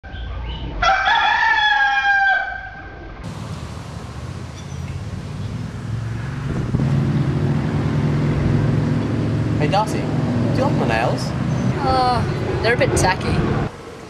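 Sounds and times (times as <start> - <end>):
rooster crowing: 0.7 - 2.9
steady outdoor hiss: 3.2 - 14.0.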